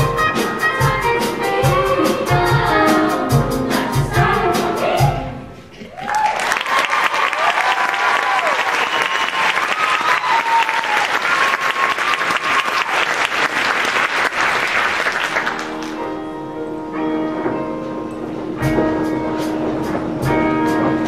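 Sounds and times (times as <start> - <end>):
audience applauding: 5.8 - 16.0
guitar and keyboard chords: 15.5 - 21.0.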